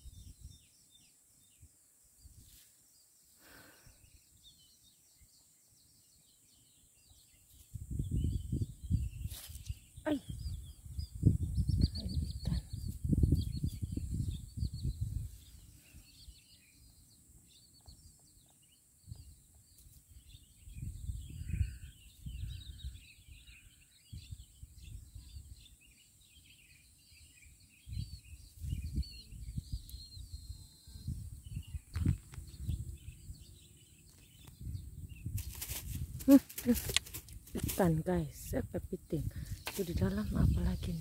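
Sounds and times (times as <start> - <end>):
small birds chirping: 0.0 - 41.0
low rumbling on microphone: 10.2 - 15.3, 27.9 - 35.4.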